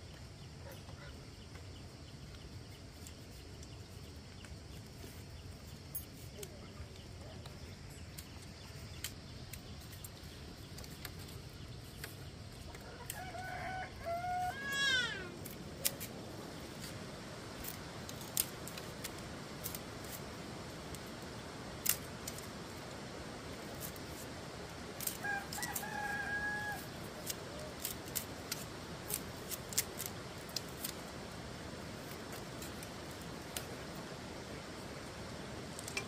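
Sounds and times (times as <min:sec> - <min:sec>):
rooster crowing: 0:12.8 - 0:15.3, 0:25.1 - 0:27.0
knife splitting bamboo strips: 0:21.8 - 0:22.6, 0:25.0 - 0:31.2.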